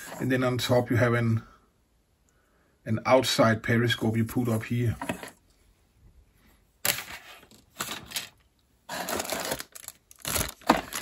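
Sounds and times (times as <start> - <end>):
plastic bag crinkling: 7.4 - 11.0.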